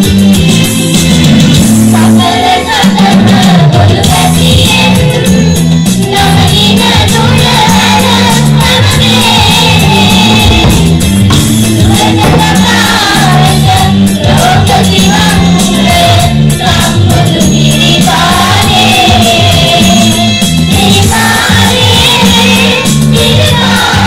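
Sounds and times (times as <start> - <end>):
children's choir singing: 1.9 - 24.0
repeating low bass pattern: 6.9 - 19.9.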